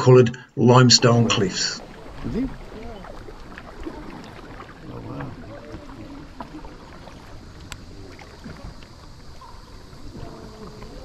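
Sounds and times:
faint distant voices: 0:00.6 - 0:08.8
paddle splashes and drips: 0:01.0 - 0:11.0.

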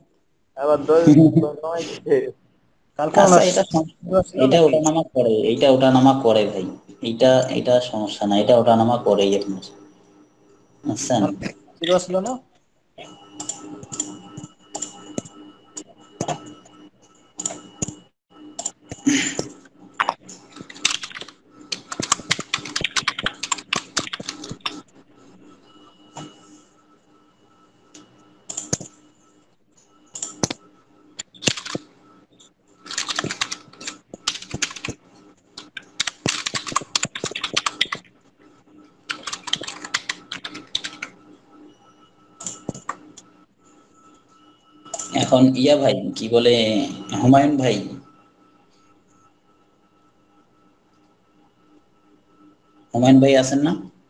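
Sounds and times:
computer keyboard typing: 0:13.0 - 0:18.0, 0:18.6 - 0:24.9, 0:28.5 - 0:29.0, 0:30.1 - 0:38.1, 0:39.1 - 0:41.2, 0:42.4 - 0:43.3, 0:44.9 - 0:45.3.

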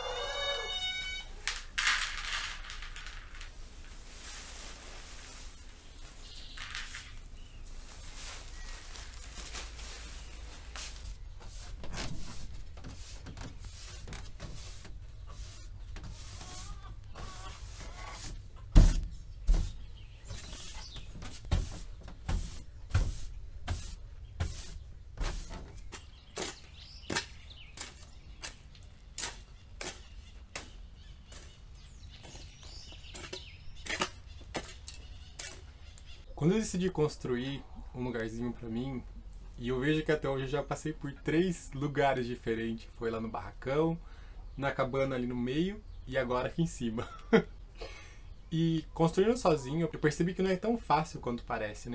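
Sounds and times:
broom sweeping wooden floor: 0:03.5 - 0:26.6
yard tool scraping dirt: 0:10.8 - 0:28.6.

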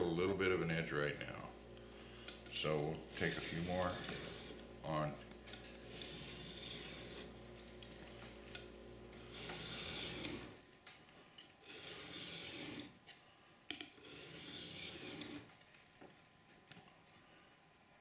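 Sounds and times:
knife rasping on sharpening stone: 0:03.1 - 0:04.6, 0:05.8 - 0:08.3, 0:09.1 - 0:10.6, 0:11.6 - 0:13.0, 0:13.9 - 0:15.5.

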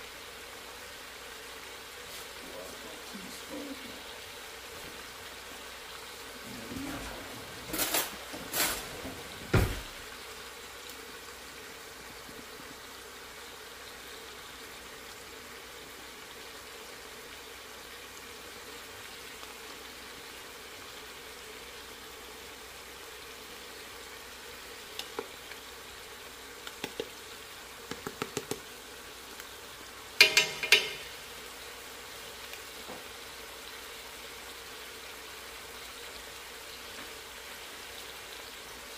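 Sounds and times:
food sizzling in pot: 0:00.0 - 0:38.9
sharp clanks: 0:30.2 - 0:31.1.

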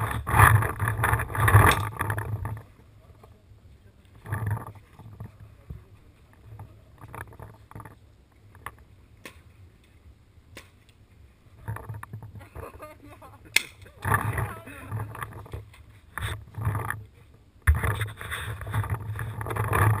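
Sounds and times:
gear bumping and rustling: 0:00.0 - 0:02.8, 0:04.1 - 0:09.5, 0:11.5 - 0:12.8, 0:13.6 - 0:20.0.

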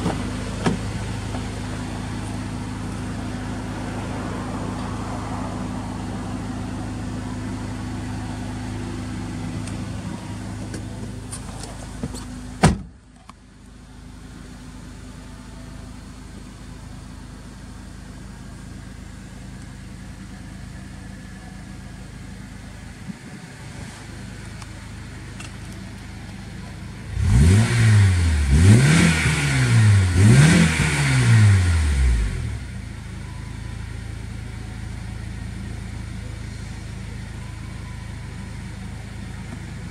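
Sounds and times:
car door shutting: 0:00.0 - 0:01.5, 0:10.6 - 0:13.0
car engine idling: 0:00.0 - 0:39.9
engine revving blips: 0:27.1 - 0:32.8.

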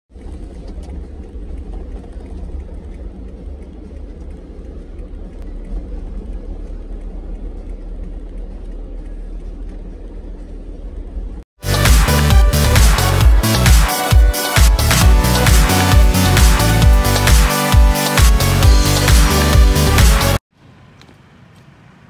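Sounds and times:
car interior road rumble: 0:00.1 - 0:11.4.

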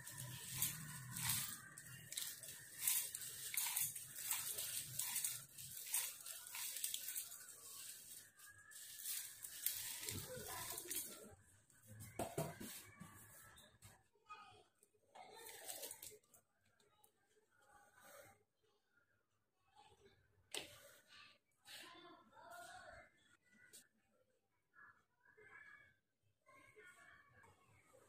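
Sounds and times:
dry spices rustling into steel jar: 0:00.0 - 0:11.2.

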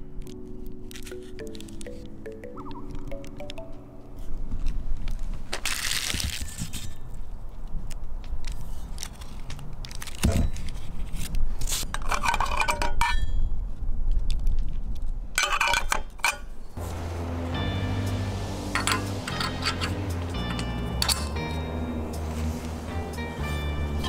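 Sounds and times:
metal parts clinking: 0:11.9 - 0:13.4, 0:15.4 - 0:16.7, 0:18.8 - 0:21.6.

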